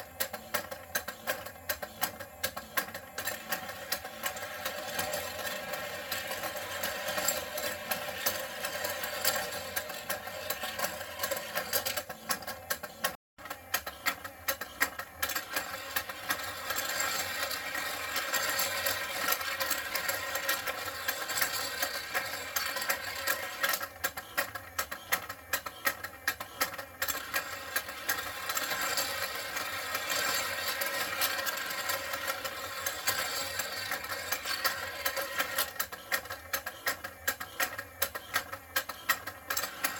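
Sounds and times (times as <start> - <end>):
toy motor clicking and rattling: 0.0 - 39.9.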